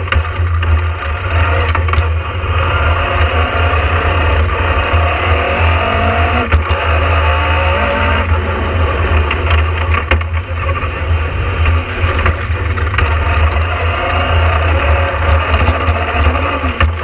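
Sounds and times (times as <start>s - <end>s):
rally car engine rumbling: 0.0s - 17.0s.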